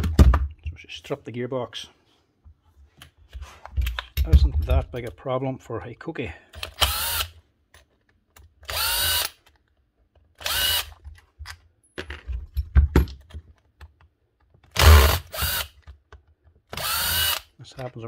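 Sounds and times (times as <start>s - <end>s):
cordless drill motor whirring: 6.8s - 7.3s, 8.6s - 9.4s, 10.4s - 11.0s, 14.7s - 15.8s, 16.7s - 17.5s.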